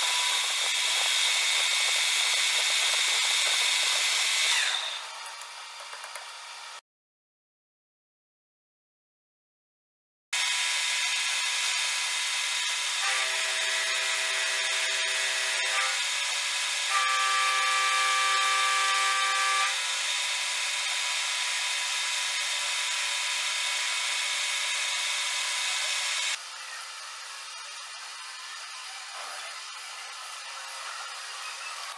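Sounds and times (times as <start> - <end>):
metal lathe machining: 0.0 - 5.2.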